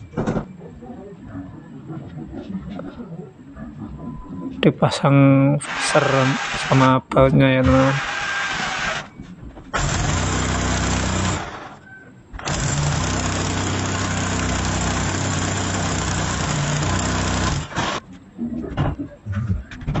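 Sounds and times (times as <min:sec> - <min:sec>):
electric drill boring into wall: 0:05.6 - 0:07.0, 0:07.6 - 0:09.1, 0:09.8 - 0:11.8, 0:12.4 - 0:18.0.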